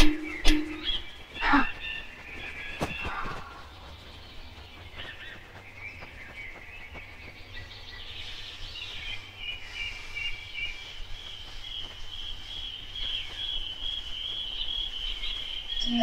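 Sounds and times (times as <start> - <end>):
high bird trill: 0.0 - 5.4
birds chirping and calling: 0.0 - 16.0.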